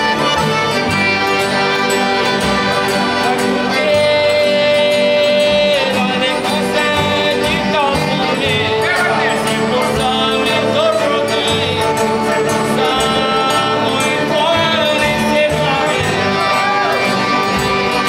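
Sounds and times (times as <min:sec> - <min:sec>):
acoustic guitar: 0:00.0 - 0:18.0
button accordion: 0:00.0 - 0:18.0
fiddles: 0:00.0 - 0:18.0
man singing: 0:03.2 - 0:17.4.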